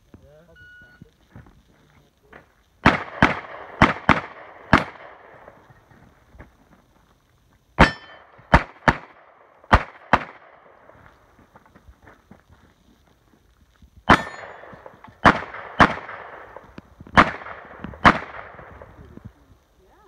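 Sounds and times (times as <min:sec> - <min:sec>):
pistol shots: 0:02.8 - 0:05.6, 0:07.8 - 0:10.8, 0:14.1 - 0:18.9.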